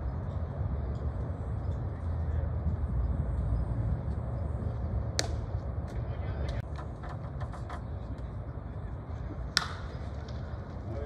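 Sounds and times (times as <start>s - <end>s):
low outdoor rumble: 0.0s - 11.0s
baseball bat crack: 5.2s - 5.5s, 9.5s - 10.4s.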